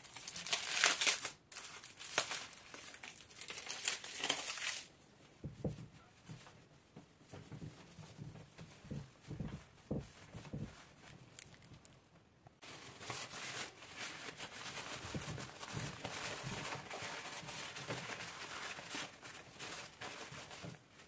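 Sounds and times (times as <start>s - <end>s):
paper towel crinkling: 0.0s - 12.0s, 12.6s - 21.0s
dull thumps: 5.4s - 12.3s.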